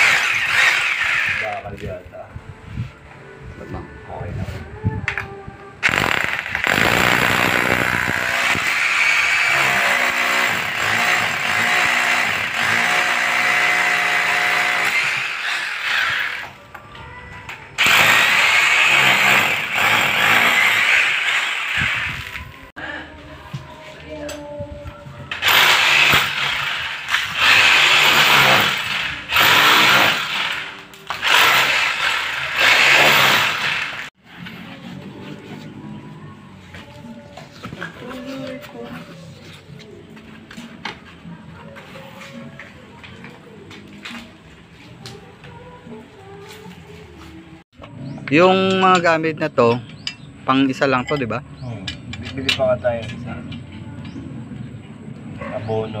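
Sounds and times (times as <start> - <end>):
electric drill boring into concrete: 0.0 - 1.6, 5.8 - 16.6, 17.8 - 22.4, 25.3 - 34.1.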